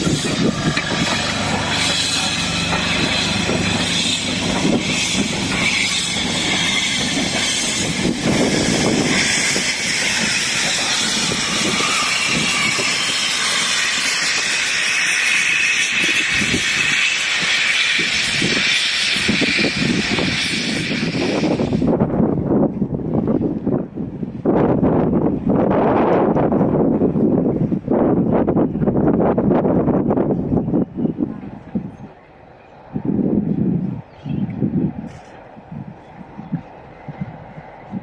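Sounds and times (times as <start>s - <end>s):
steam locomotive hissing: 0.0s - 22.0s.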